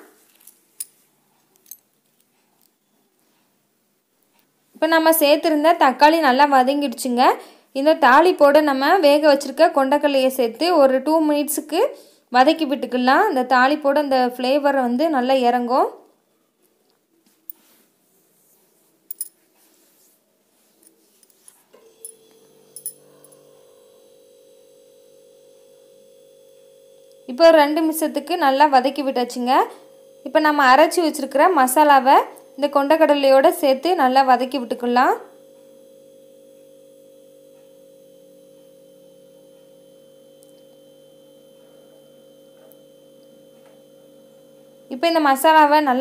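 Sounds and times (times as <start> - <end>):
steady hum: 22.0 - 46.0.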